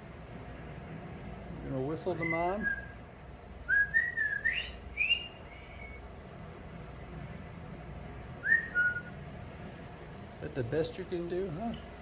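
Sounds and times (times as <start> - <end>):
person whistling: 3.7 - 6.0, 8.4 - 9.1.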